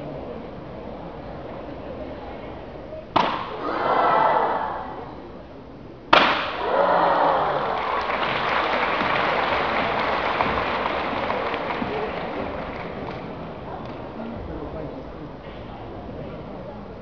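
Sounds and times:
audience applauding: 6.7 - 14.1.

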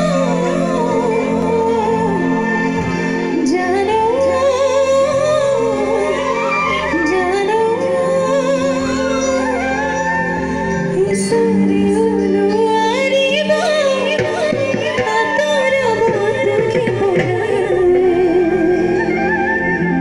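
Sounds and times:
live band playing: 0.0 - 20.0
woman singing: 0.0 - 20.0.

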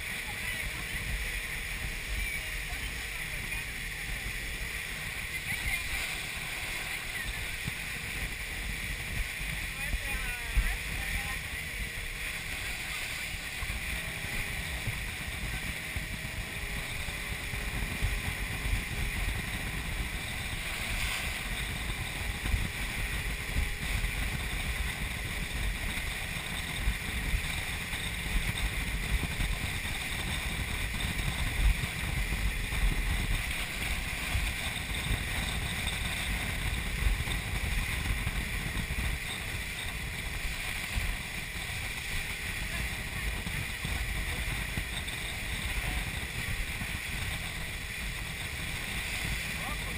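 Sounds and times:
water hiss and boat noise: 0.0 - 49.9
wind buffeting microphone: 0.0 - 49.9.

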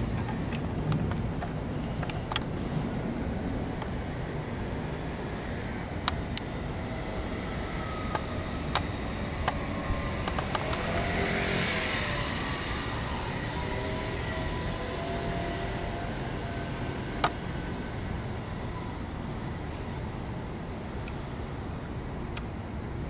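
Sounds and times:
distant traffic rumble: 0.0 - 23.0
high insect trill: 0.0 - 23.0
vehicle passing: 6.3 - 18.7.

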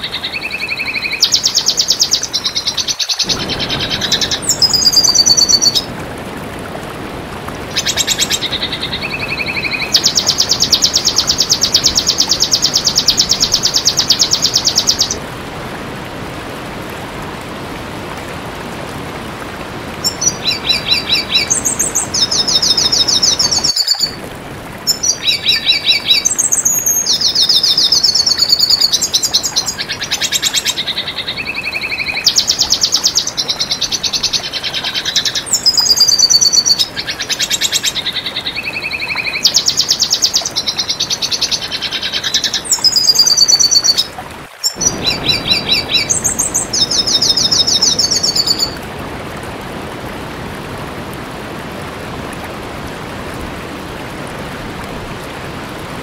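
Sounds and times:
bird twittering trills: 0.0 - 5.9, 44.6 - 48.8.

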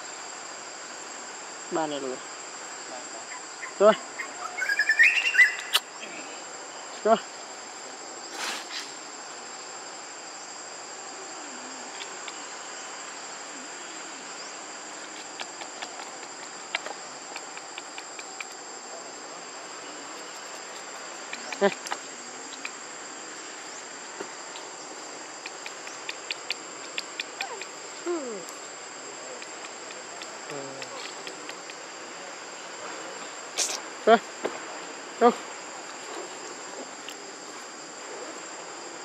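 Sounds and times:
high-pitched insect drone: 10.4 - 34.4
sharp clicks: 15.2 - 18.6, 21.2 - 22.8, 25.4 - 27.8.

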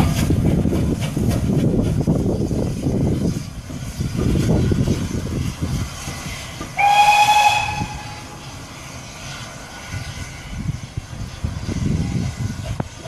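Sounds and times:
steam train rumbling: 0.0 - 13.0
steam locomotive whistle: 6.8 - 8.5.

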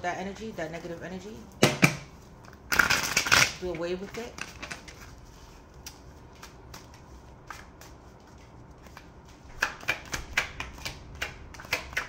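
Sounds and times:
cards being shuffled: 2.4 - 12.0.

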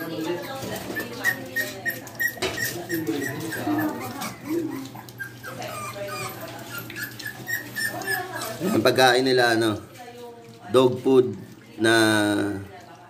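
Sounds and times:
puppies whimpering and yipping: 0.0 - 9.4.

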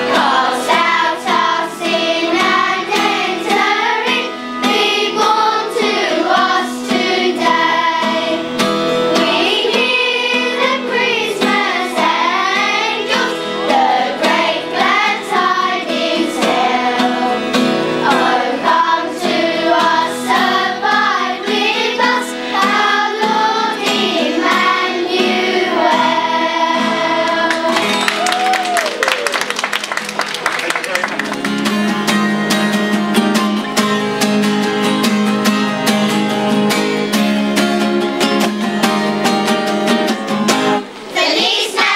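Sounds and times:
children's choir singing a carol: 0.0 - 27.9, 41.0 - 41.9.

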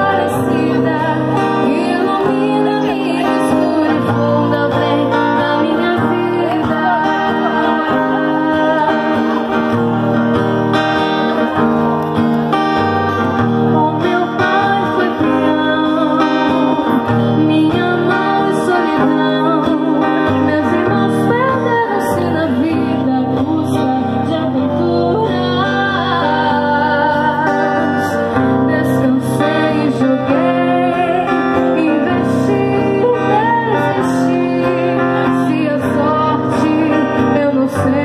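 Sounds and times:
person singing: 0.0 - 11.6, 12.5 - 38.0
guitar accompaniment: 0.0 - 38.0.

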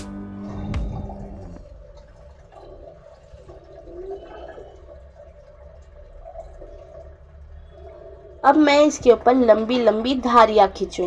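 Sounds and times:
background guitar music: 0.0 - 1.6
steady low hum: 0.0 - 11.0.

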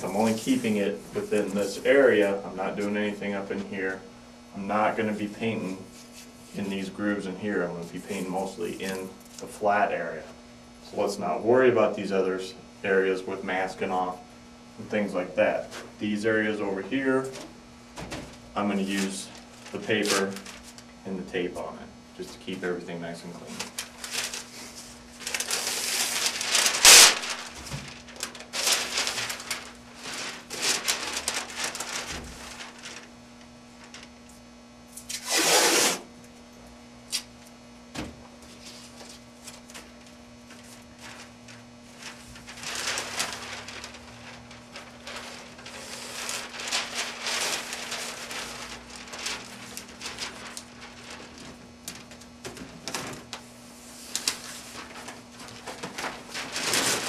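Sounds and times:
masking paper rustling: 0.0 - 4.0, 4.6 - 9.9, 14.8 - 36.0, 38.4 - 57.0
masking tape unrolling: 23.7 - 33.0, 34.9 - 36.1, 42.0 - 52.2.

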